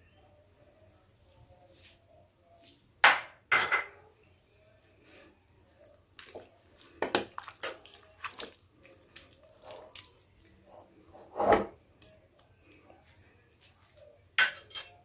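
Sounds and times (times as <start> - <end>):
spoon stirring thick curry: 5.0 - 15.0.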